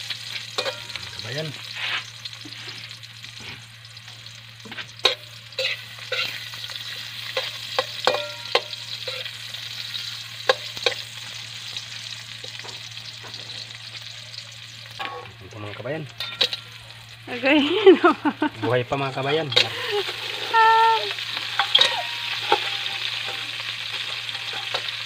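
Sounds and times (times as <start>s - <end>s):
food sizzling in hot oil: 0.0s - 25.0s
metal spatula scraping wok: 4.7s - 11.2s, 21.2s - 25.0s.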